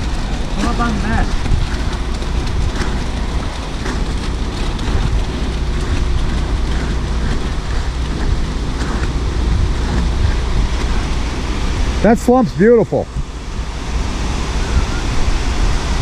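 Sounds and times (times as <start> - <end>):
rakes scraping concrete: 0.0 - 12.3
wet concrete sliding down chute: 0.0 - 12.6
concrete mixer truck rumbling: 0.0 - 16.0.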